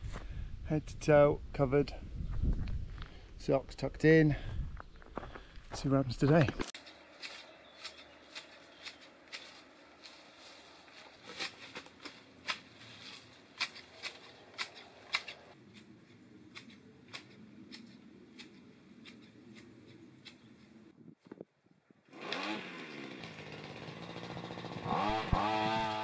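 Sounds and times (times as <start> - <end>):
garden shears snipping: 6.4 - 20.9.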